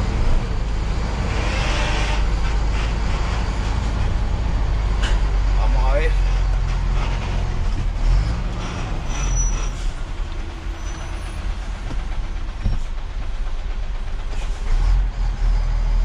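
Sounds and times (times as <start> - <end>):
diesel truck engine running: 0.0 - 16.0
clunk: 4.9 - 5.4, 6.2 - 14.7.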